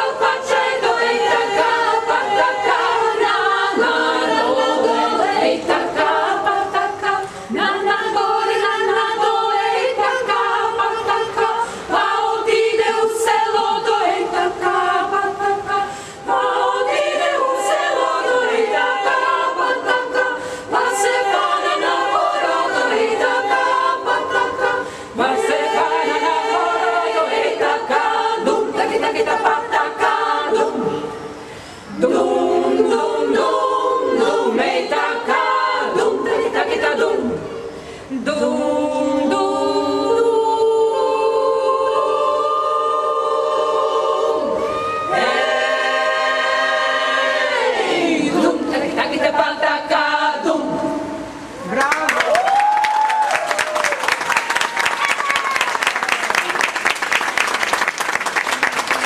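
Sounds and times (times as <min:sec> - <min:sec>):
women's choir singing: 0:00.0 - 0:51.6.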